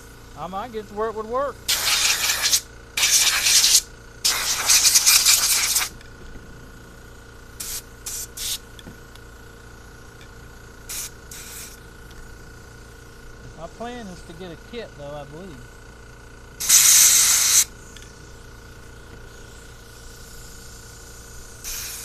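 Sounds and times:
compressed air blow gun hissing: 0:01.6 - 0:06.0, 0:07.5 - 0:13.0, 0:16.6 - 0:22.0.

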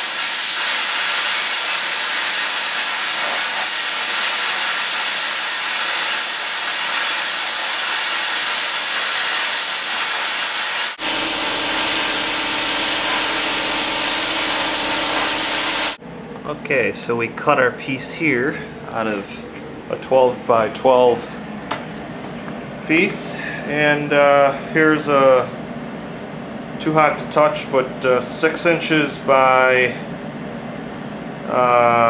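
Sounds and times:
plasma cutter hissing: 0:00.0 - 0:16.0.

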